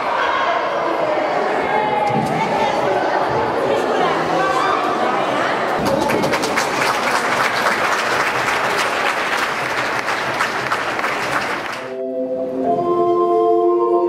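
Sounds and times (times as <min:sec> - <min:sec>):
audience clapping: 0:05.8 - 0:12.0
instrumental music with held notes: 0:11.9 - 0:14.0.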